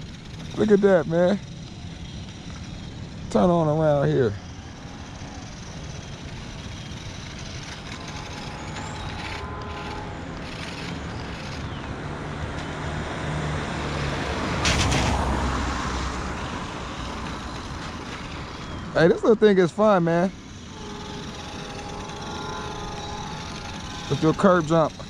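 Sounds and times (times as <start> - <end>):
distant motor vehicles: 0.0 - 25.0
loud rushing noise: 5.8 - 18.6.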